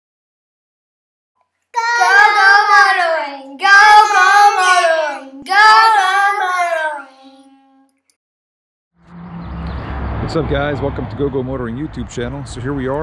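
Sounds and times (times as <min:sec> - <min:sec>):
high voice singing jingle: 0:01.8 - 0:07.9.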